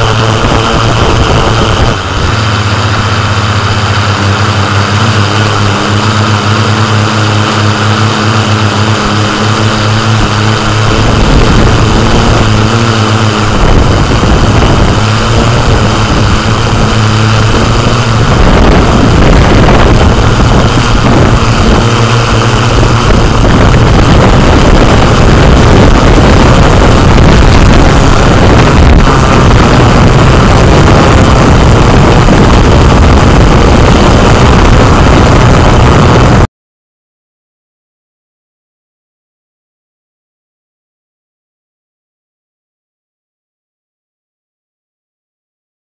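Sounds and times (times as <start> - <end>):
drone propellers buzzing: 0.0 - 36.5.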